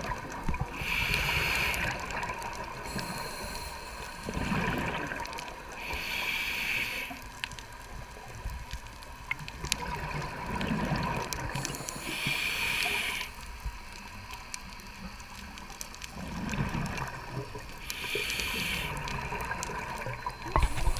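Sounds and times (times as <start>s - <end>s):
exhaled bubbles gurgling: 0.0s - 7.2s, 7.8s - 13.3s, 15.6s - 20.9s
regulator inhalation hiss: 0.7s - 2.2s, 2.8s - 4.6s, 5.7s - 7.4s, 11.6s - 13.9s, 17.8s - 19.5s, 20.5s - 20.9s.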